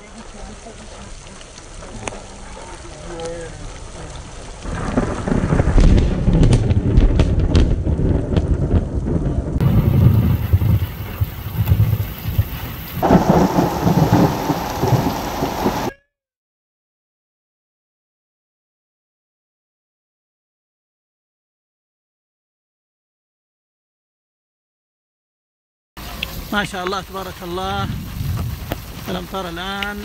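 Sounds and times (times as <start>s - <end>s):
heavy rain pouring: 0.0s - 15.9s, 26.0s - 30.0s
thunder rumble with cracks: 4.0s - 15.9s, 26.1s - 30.0s.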